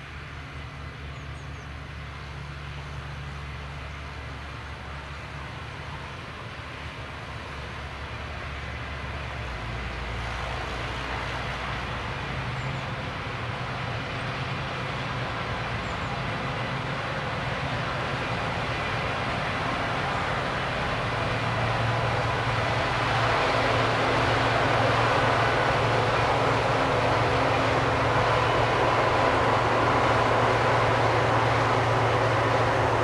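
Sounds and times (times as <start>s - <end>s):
engine humming: 13.8s - 33.0s.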